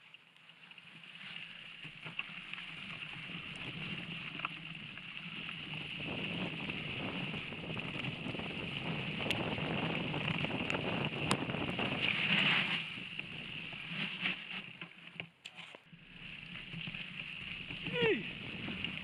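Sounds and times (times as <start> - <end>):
bike clicks and rattles: 1.5 - 17.8
wind on microphone: 5.6 - 13.7.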